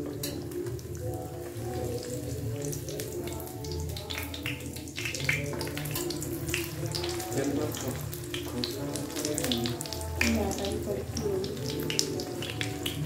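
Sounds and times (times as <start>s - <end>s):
background music: 0.0s - 13.0s
oil sizzling in a pan: 0.0s - 13.0s.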